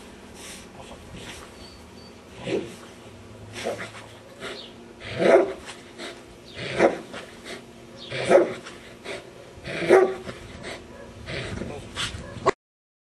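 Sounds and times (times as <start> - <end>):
dog barking: 5.2 - 5.6, 6.8 - 7.1, 8.0 - 8.6, 9.8 - 11.2, 12.2 - 12.6.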